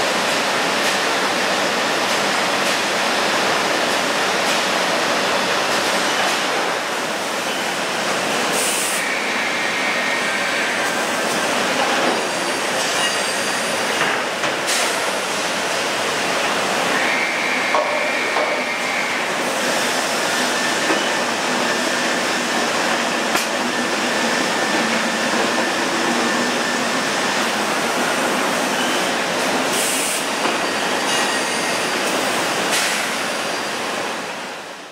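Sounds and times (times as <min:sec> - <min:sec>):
loud machine noise: 0:08.2 - 0:33.6.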